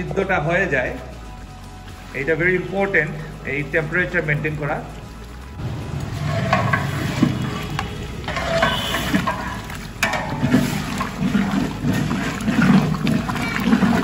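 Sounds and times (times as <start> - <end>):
broth bubbling in a pot: 0.0 - 14.0
ladle clinking against pot: 6.5 - 14.0.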